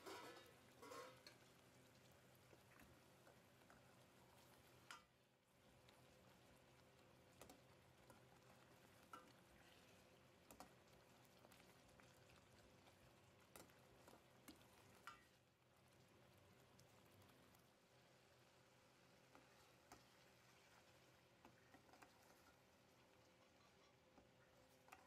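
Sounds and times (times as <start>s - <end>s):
metal spoon scraping a pot: 0.0s - 1.4s
gravy simmering sizzle: 0.0s - 25.0s.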